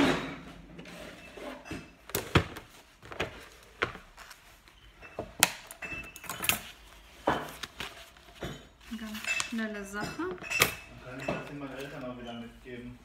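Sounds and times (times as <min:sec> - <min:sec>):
paper handling: 0:06.5 - 0:09.9.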